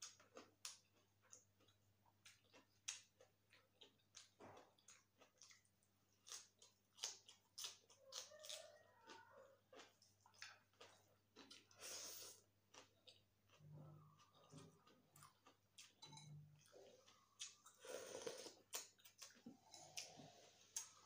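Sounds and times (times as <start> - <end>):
crunchy chewing: 0.0 - 21.0.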